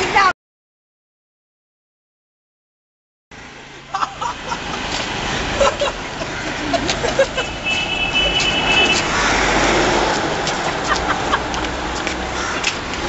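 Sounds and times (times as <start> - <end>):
traffic hum: 3.3 - 13.0
vehicle passing loudly: 3.4 - 13.0
car horn: 7.4 - 9.2.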